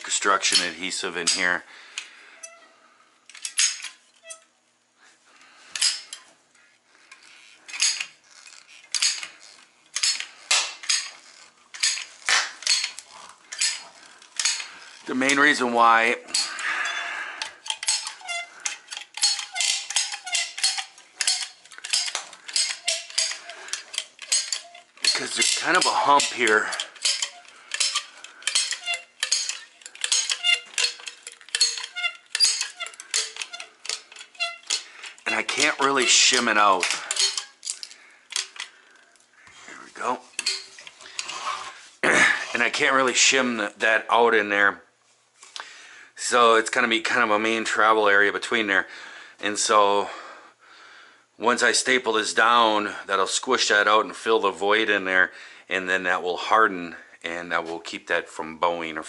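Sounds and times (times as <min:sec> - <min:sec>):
caulking gun metallic clacks: 0:08.9 - 0:15.7, 0:17.6 - 0:38.8, 0:40.3 - 0:41.0.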